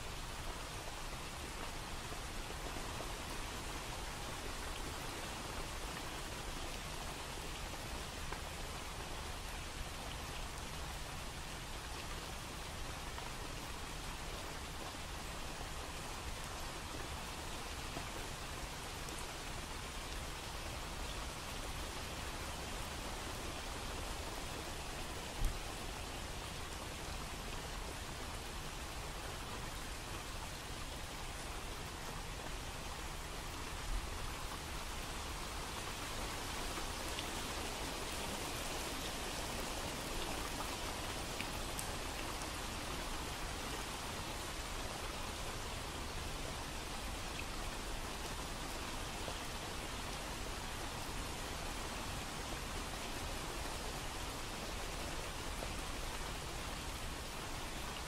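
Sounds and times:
steady rain falling: 0:00.0 - 0:58.0.

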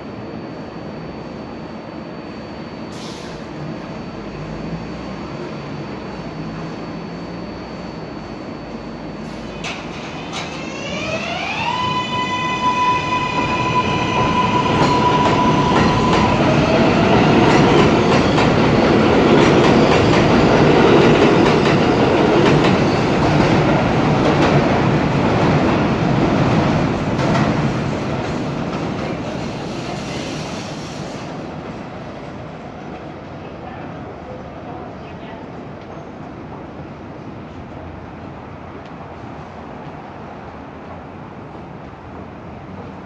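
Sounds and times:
train wheel and rail clickety-clack: 0:09.5 - 0:10.7, 0:13.4 - 0:31.9.

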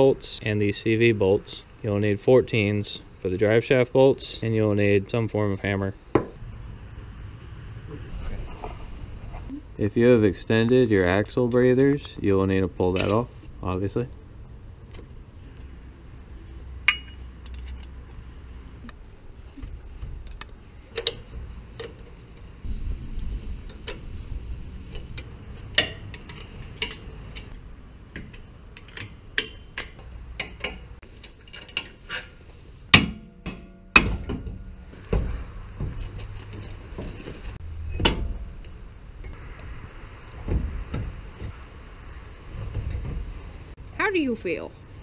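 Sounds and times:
metallic clanks: 0:16.8 - 0:18.1, 0:24.9 - 0:39.6
hand tools clinking on metal: 0:16.9 - 0:18.0, 0:25.0 - 0:27.6, 0:28.2 - 0:32.4.

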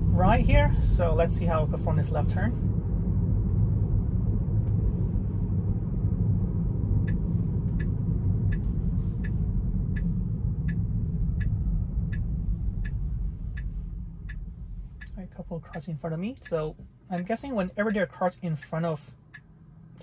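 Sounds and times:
road and tyre rumble: 0:00.0 - 0:20.0
turn-signal indicator ticking: 0:07.0 - 0:16.8, 0:18.1 - 0:19.6.

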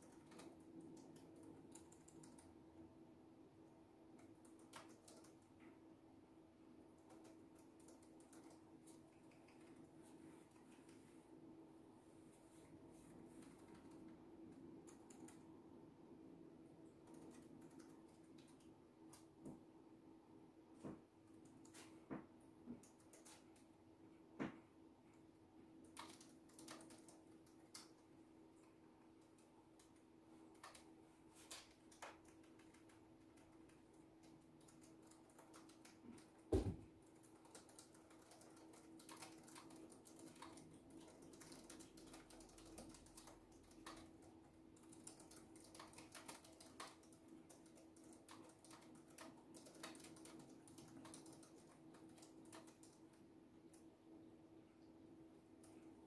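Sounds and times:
keyboard typing: 0:00.0 - 0:02.8, 0:04.1 - 0:05.6, 0:06.9 - 0:11.0, 0:13.2 - 0:15.6, 0:16.8 - 0:19.6, 0:22.8 - 0:23.7, 0:25.8 - 0:53.9
thump: 0:36.5 - 0:36.8.

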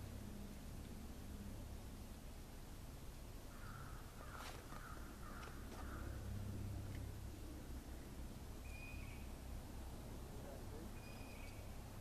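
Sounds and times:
low steady rumble: 0:00.0 - 0:12.0
crow cawing: 0:03.5 - 0:06.2.

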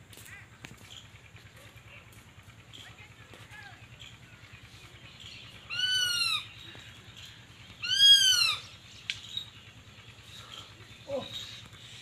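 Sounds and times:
hawk wailing calls: 0:05.7 - 0:06.6, 0:07.8 - 0:08.8.

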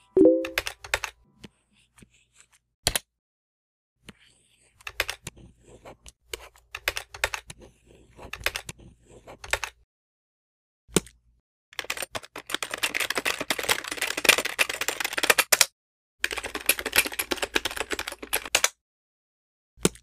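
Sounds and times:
fast typing on keyboard: 0:00.2 - 0:01.2, 0:04.8 - 0:05.2, 0:06.8 - 0:07.5, 0:08.2 - 0:08.7, 0:11.8 - 0:18.7.

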